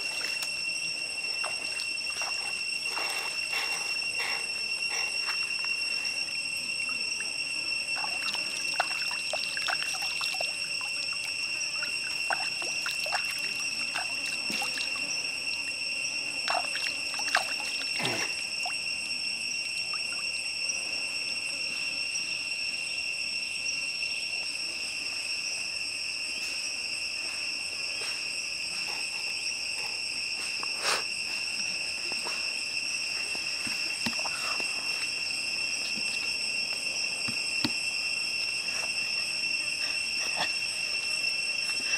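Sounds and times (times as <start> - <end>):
trickling stream: 0.0 - 0.6, 1.4 - 6.1, 6.8 - 15.6, 16.4 - 18.9, 19.8 - 20.3, 33.4 - 36.7
high-pitched insect trill: 0.0 - 41.9.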